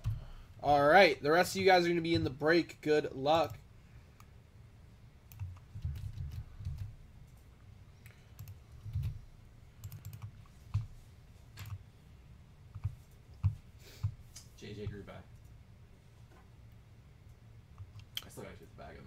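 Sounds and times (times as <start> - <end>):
computer keyboard typing: 5.3 - 7.4, 8.0 - 9.2, 9.8 - 10.9, 11.6 - 11.8, 12.7 - 14.2.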